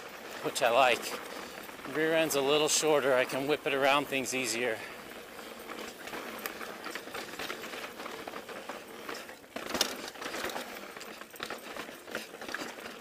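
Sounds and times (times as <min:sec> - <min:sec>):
bike knocks and rattles: 0:00.0 - 0:13.0
bike tyres rolling on dirt: 0:00.0 - 0:13.0.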